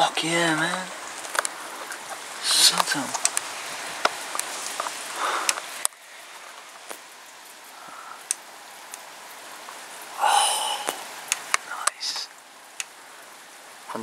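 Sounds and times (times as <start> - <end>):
steady rain: 0.0 - 14.0
sharp drip ticks: 0.6 - 9.8, 10.8 - 13.0.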